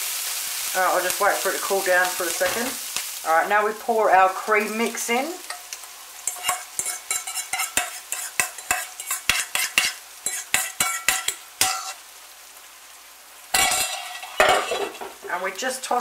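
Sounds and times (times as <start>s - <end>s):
frying sizzle: 0.0s - 16.0s
utensil scraping and knocking bowl: 6.3s - 12.0s.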